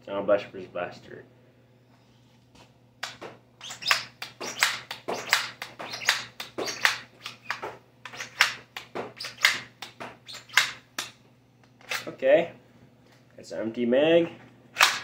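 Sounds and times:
foam-dart blaster firing: 0:03.6 - 0:10.8.

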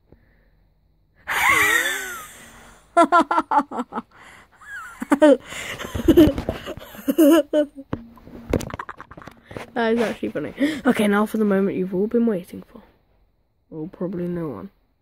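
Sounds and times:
boy shrieking: 0:01.3 - 0:02.6
boy laughing: 0:01.3 - 0:07.9, 0:08.5 - 0:09.6.

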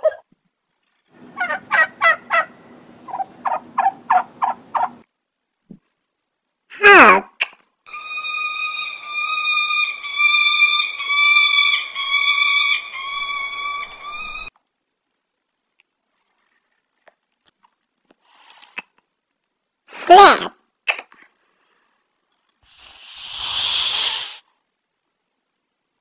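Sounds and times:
hawk calling: 0:07.9 - 0:14.5.

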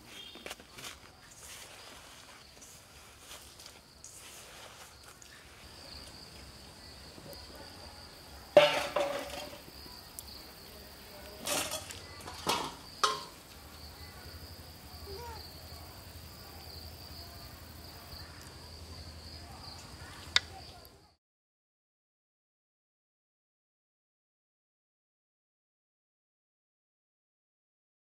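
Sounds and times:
insects droning: 0:00.0 - 0:21.2.

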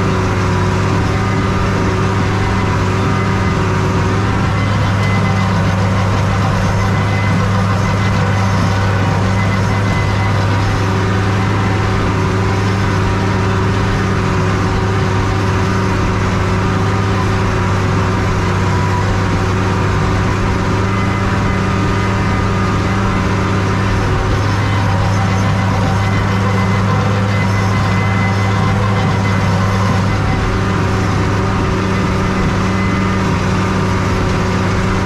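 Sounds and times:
tractor diesel engine under load: 0:00.0 - 0:35.0.

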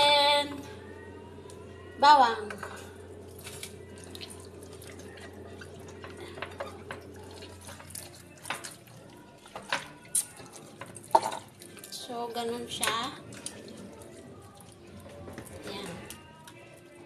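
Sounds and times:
low steady hum: 0:00.0 - 0:09.6.

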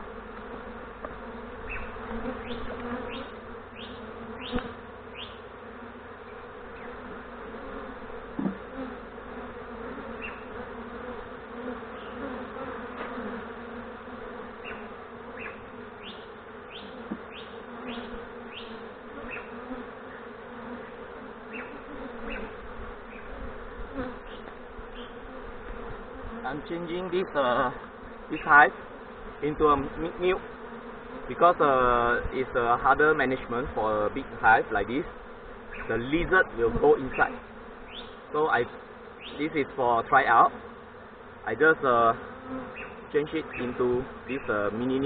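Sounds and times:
bees buzzing: 0:00.0 - 0:45.0.

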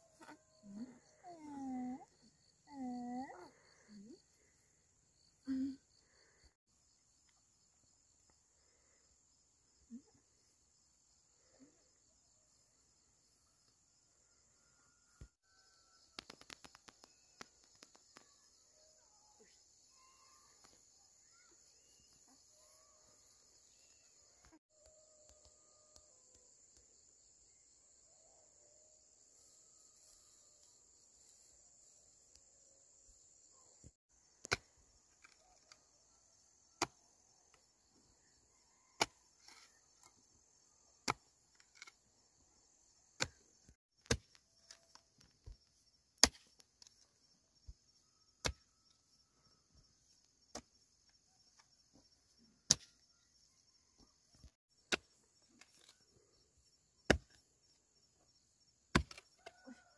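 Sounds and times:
axe chopping wood: 0:44.0 - 0:44.4, 0:46.2 - 0:46.5, 0:48.4 - 0:48.6, 0:58.9 - 0:59.2.

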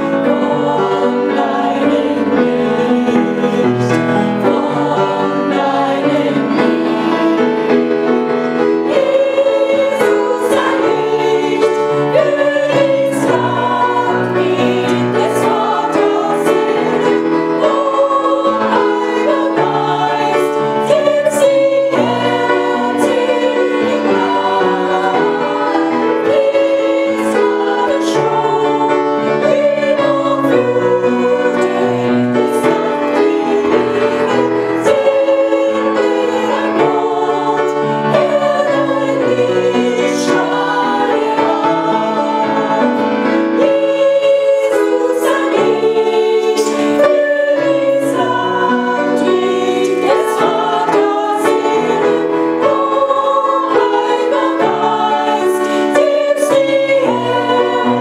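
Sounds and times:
women singing together: 0:00.0 - 0:58.0.

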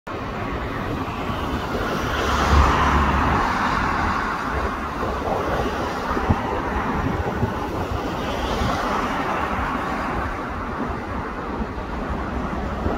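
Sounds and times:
road traffic noise: 0:00.1 - 0:12.9
car passing close by: 0:00.8 - 0:10.7.

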